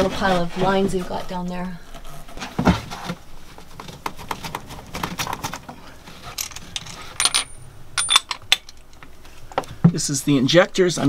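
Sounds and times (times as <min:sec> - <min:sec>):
small metal parts and tools clinking: 0:05.3 - 0:09.0.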